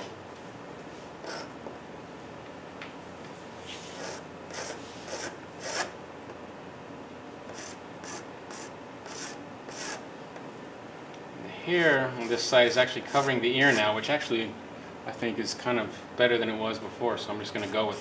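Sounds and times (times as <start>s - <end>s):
pastel scratching on paper: 3.7s - 5.9s, 7.5s - 10.0s.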